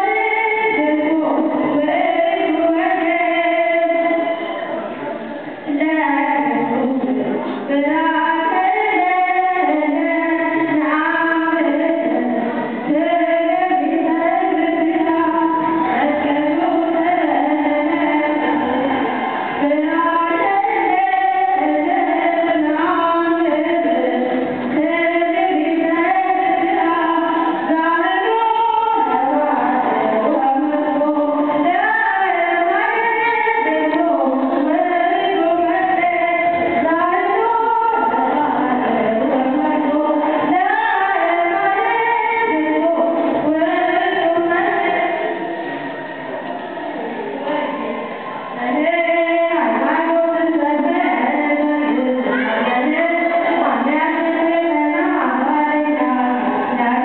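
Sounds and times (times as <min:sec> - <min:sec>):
group singing a hymn: 0:13.0 - 0:24.5.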